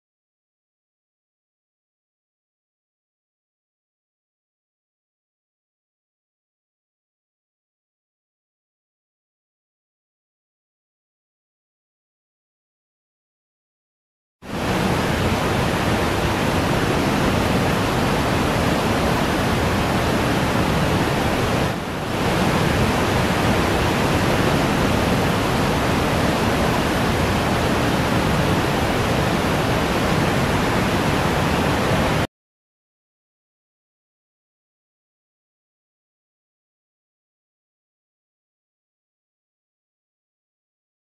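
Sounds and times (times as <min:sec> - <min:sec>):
loud steady rushing noise: 0:14.5 - 0:32.3.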